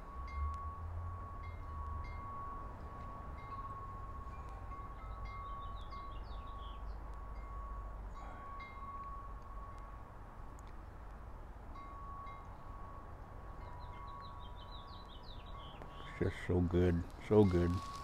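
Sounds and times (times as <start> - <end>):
birds chirping: 4.3 - 8.8, 12.4 - 18.0
high-pitched ringing tone: 17.3 - 18.0.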